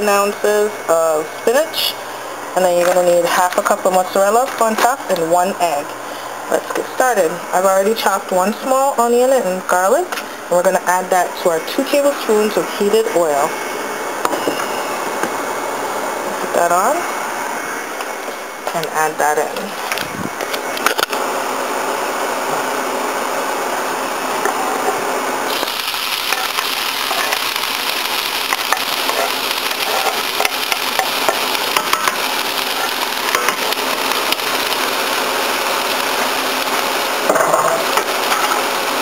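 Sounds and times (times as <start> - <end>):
onion and garlic sizzling in oil: 20.6 - 39.0.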